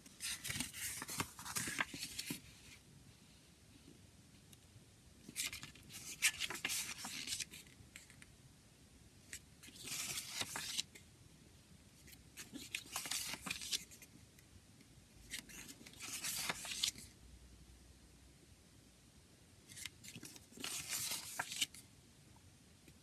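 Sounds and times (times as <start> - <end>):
paper pages turning: 0.2 - 2.8, 5.3 - 8.2, 9.3 - 10.9, 12.1 - 14.1, 15.3 - 17.1, 19.7 - 21.8.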